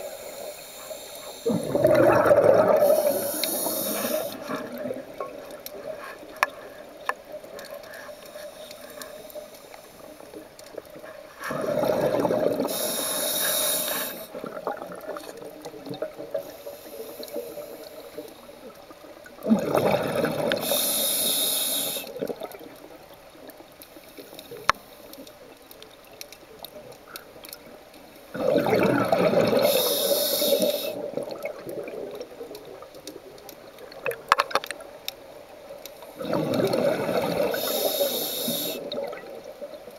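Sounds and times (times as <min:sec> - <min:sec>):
regulator hiss: 0:00.0 - 0:01.8, 0:02.8 - 0:04.6, 0:12.6 - 0:14.4, 0:20.6 - 0:22.2, 0:29.6 - 0:31.1, 0:37.4 - 0:39.0
exhaled bubbles underwater: 0:00.0 - 0:08.0, 0:10.3 - 0:23.2, 0:28.3 - 0:35.1, 0:36.0 - 0:39.9
small clicks: 0:32.5 - 0:35.2.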